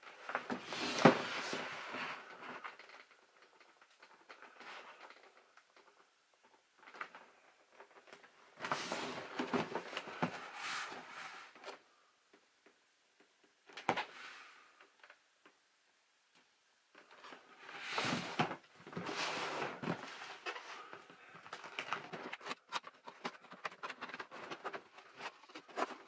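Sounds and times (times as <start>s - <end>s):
cardboard box rubbing and scraping: 17.7s - 18.4s.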